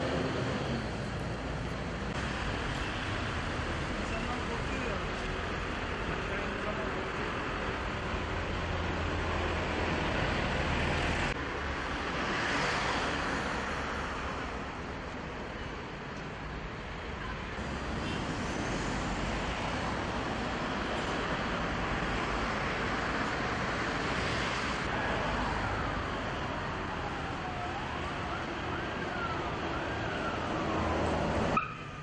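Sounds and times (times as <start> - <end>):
road traffic: 0.0 - 32.0
siren wailing: 26.7 - 32.0.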